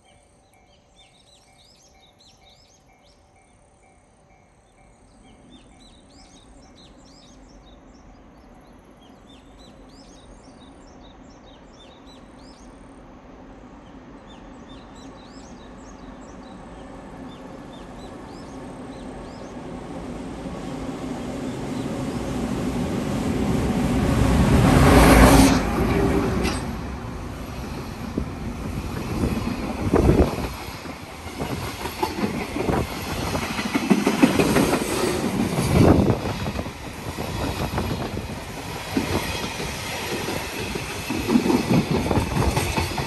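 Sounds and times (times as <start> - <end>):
freight train passing: 0.0 - 43.0
small birds chirping: 13.8 - 22.5.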